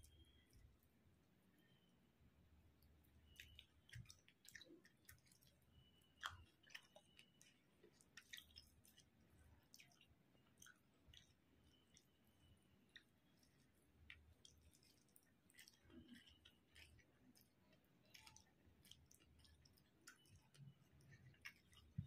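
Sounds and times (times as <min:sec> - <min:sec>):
close-up chewing: 0:00.0 - 0:00.9, 0:02.8 - 0:22.0
wet mouth clicks and smacks: 0:03.3 - 0:12.1, 0:14.1 - 0:22.0.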